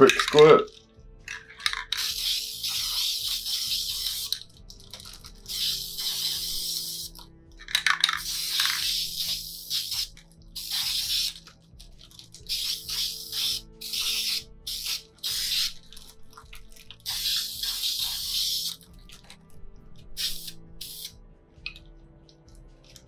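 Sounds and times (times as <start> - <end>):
aerosol spray paint hissing: 1.9 - 7.3, 8.0 - 11.6, 12.3 - 16.3, 16.9 - 19.3, 20.0 - 21.2.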